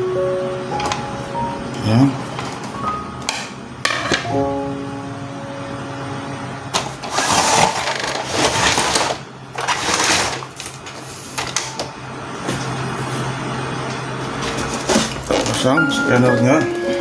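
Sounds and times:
low hum: 0:03.0 - 0:09.0
plastic casing scraping: 0:07.0 - 0:10.9.

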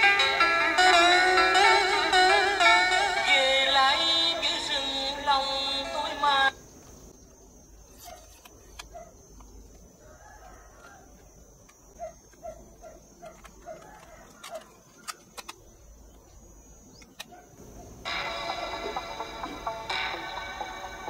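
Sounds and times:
plastic cassette clicks: 0:08.0 - 0:09.9, 0:13.1 - 0:15.8, 0:17.0 - 0:17.4.

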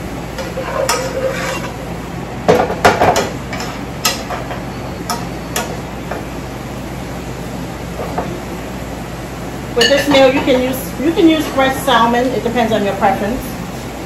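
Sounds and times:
spatula clattering in skillet: 0:00.4 - 0:01.8.

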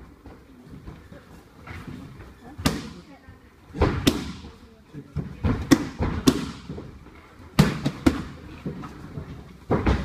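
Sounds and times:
strikes smacking on pads: 0:05.5 - 0:06.8.

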